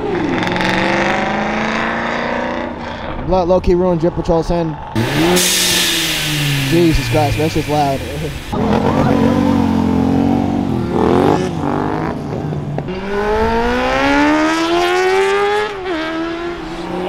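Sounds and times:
car engines accelerating past: 0.0s - 3.2s, 4.8s - 17.0s.

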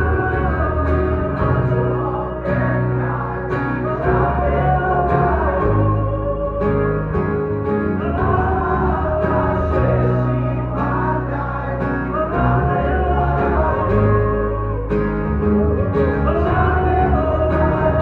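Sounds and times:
acoustic guitars: 0.0s - 18.0s
bass guitar: 0.0s - 18.0s
man singing: 0.0s - 18.0s.

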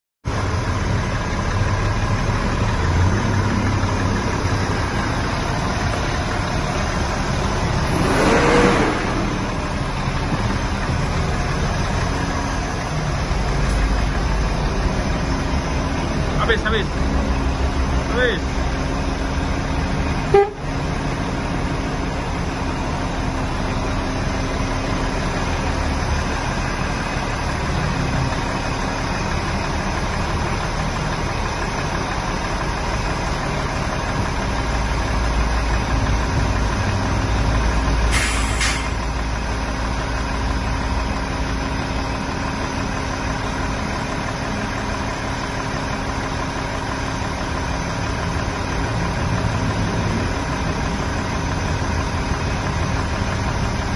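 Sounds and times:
diesel engine running: 0.2s - 53.9s
short hiss: 38.1s - 39.0s.

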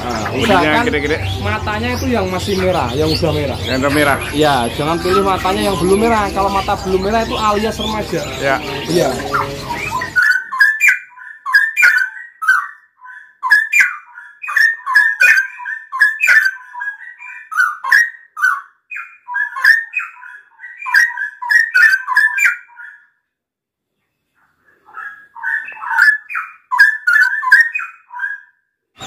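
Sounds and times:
bird singing whistled notes: 0.0s - 23.0s.

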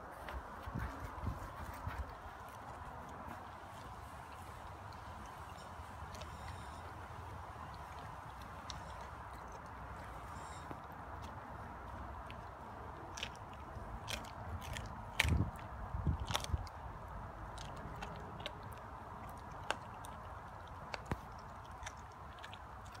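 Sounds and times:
dog chewing raw chicken: 0.8s - 23.0s.

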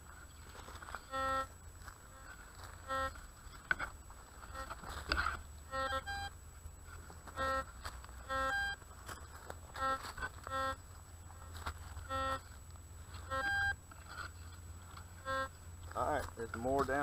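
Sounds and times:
metal detector beeps: 0.3s - 6.4s, 7.3s - 10.8s, 12.0s - 14.6s, 15.2s - 17.0s.

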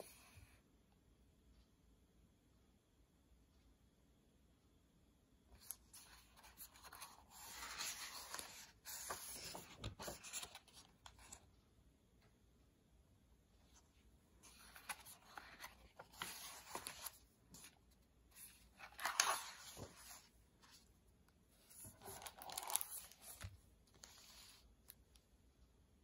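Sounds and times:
pages turning: 5.6s - 11.5s, 14.4s - 25.2s
plastic book jacket crinkling: 14.4s - 17.8s, 18.4s - 20.3s, 21.7s - 24.5s.

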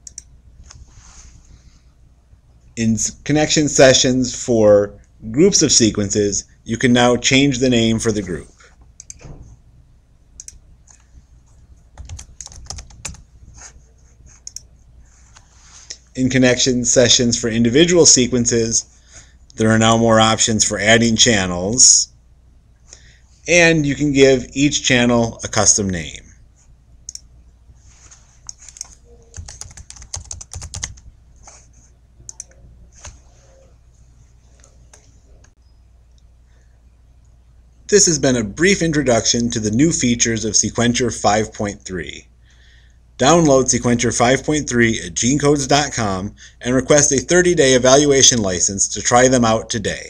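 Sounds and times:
computer mouse clicks: 0.0s - 0.3s, 8.9s - 9.2s, 10.4s - 11.1s, 14.4s - 14.7s, 28.4s - 31.0s
typing on keyboard: 12.0s - 13.2s, 28.5s - 31.0s.

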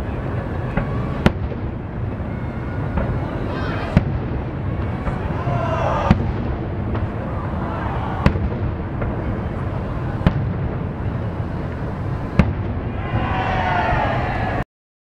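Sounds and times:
distant fireworks bangs: 0.0s - 14.6s.

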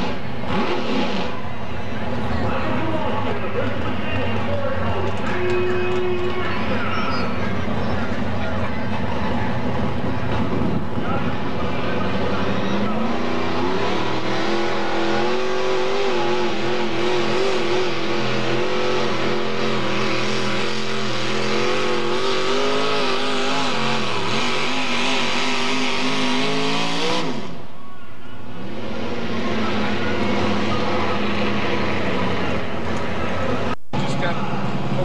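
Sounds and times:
tractor engine revving under load: 0.0s - 1.4s, 11.6s - 27.6s.

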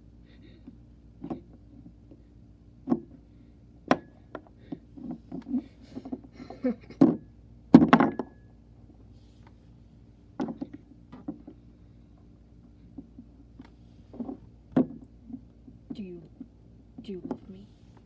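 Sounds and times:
plastic toys knocking on wood: 7.0s - 8.4s, 14.2s - 15.1s.

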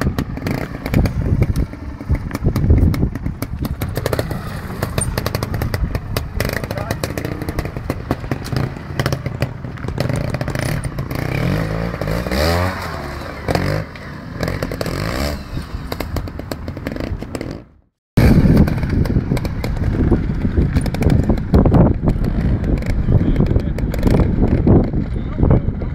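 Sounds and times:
motorcycle engine revving: 0.0s - 25.9s
knocks and clatter: 14.4s - 25.9s.

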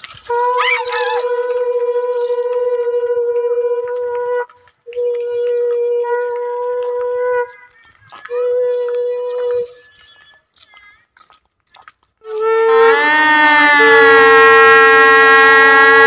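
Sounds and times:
conch shell blasts: 0.3s - 7.5s, 12.3s - 16.0s.

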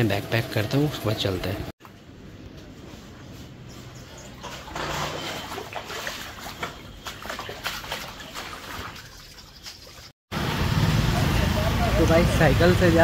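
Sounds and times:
water splashing on wet ground: 5.6s - 10.1s.

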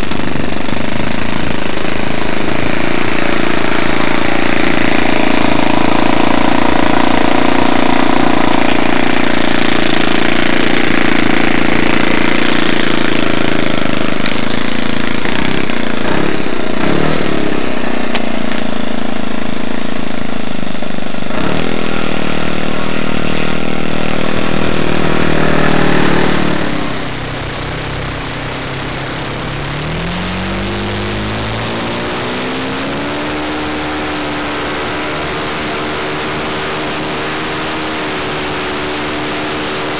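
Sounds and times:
model aircraft engine revving: 0.0s - 39.9s.

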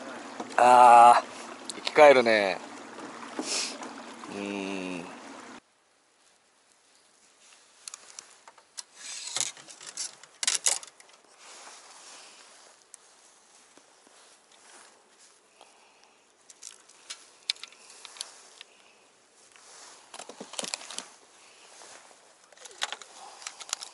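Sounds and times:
person saying ahh: 0.6s - 1.3s, 4.3s - 5.2s.

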